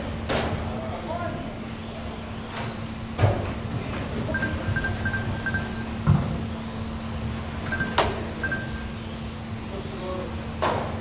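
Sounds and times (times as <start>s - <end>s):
steady low hum: 0.0s - 11.0s
short high beeps: 4.4s - 5.9s, 7.7s - 8.9s.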